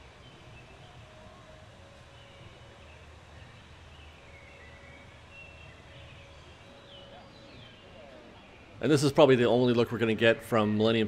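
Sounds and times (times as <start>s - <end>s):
distant bird chirps: 0.0s - 10.9s.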